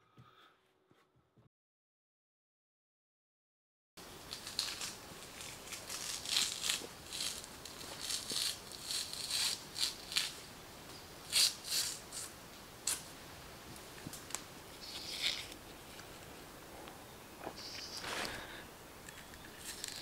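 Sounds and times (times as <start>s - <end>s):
bark tearing and rustling: 4.3s - 10.4s, 19.5s - 20.0s
long tearing rasp: 4.4s - 10.4s, 11.2s - 13.0s.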